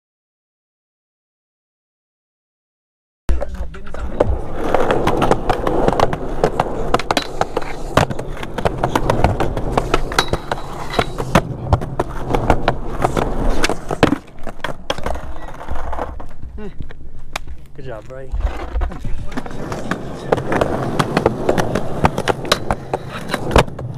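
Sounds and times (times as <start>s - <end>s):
skateboard clacking on ground: 3.3s - 23.9s
skateboard wheels rolling: 3.3s - 23.9s.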